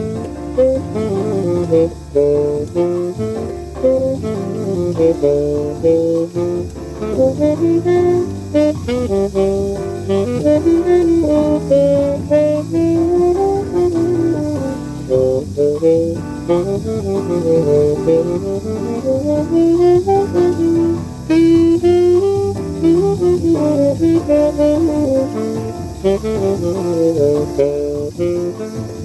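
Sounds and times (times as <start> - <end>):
backing accompaniment: 0.0 - 29.0
tenor saxophone jazz line: 0.0 - 29.0.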